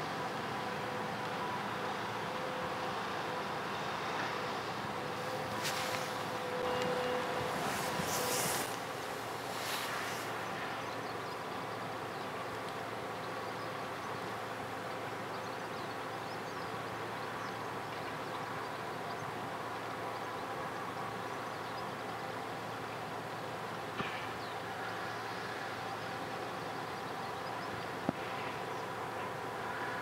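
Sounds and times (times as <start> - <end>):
distant ship engines droning: 0.0 - 30.0
background hiss: 4.8 - 15.6.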